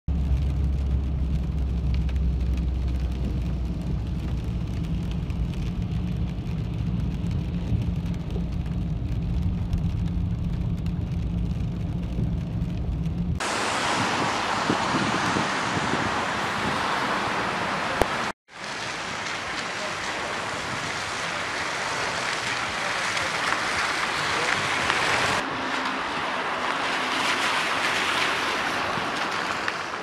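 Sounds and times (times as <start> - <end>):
car engine and tyre rumble: 0.1 - 30.0
rain ticking on windscreen: 0.1 - 30.0
wind and rain hiss: 1.2 - 30.0.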